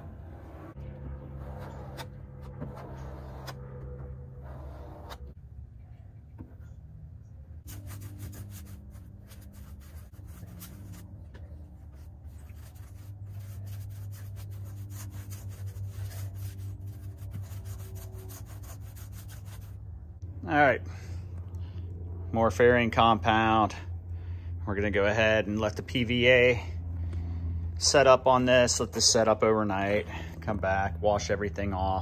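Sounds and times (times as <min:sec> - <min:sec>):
paintbrush scrubbing fiberglass: 0:00.0 - 0:05.4, 0:07.7 - 0:19.9
low steady hum: 0:00.0 - 0:32.0.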